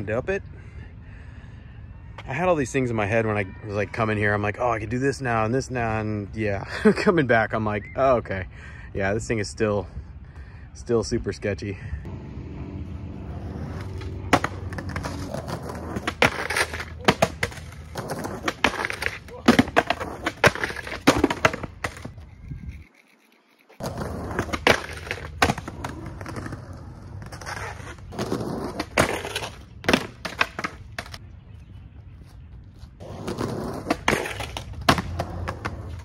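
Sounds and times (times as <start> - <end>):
skateboard rolling on concrete: 12.6 - 22.9, 23.7 - 36.0.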